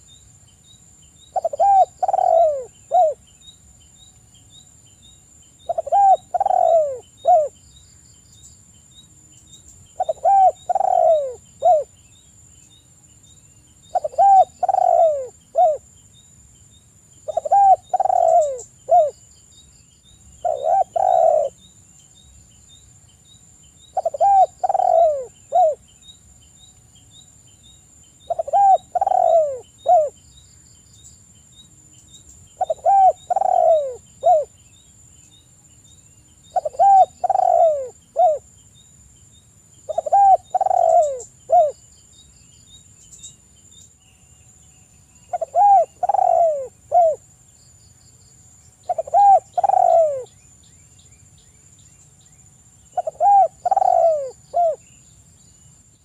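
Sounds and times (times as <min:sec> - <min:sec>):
dove cooing: 0:01.3 - 0:03.2, 0:05.6 - 0:07.6, 0:10.0 - 0:11.9, 0:13.9 - 0:15.8, 0:17.2 - 0:19.2, 0:20.4 - 0:21.6, 0:24.0 - 0:25.8, 0:28.3 - 0:30.2, 0:32.6 - 0:34.5, 0:36.5 - 0:38.5, 0:39.9 - 0:41.8, 0:45.3 - 0:47.2, 0:48.9 - 0:50.3, 0:53.0 - 0:54.8.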